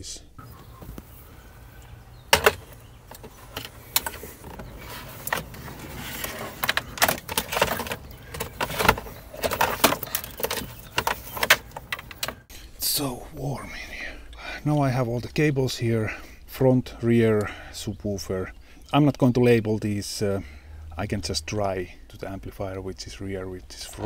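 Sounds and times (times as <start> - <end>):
cables rustling: 0.4 - 12.5.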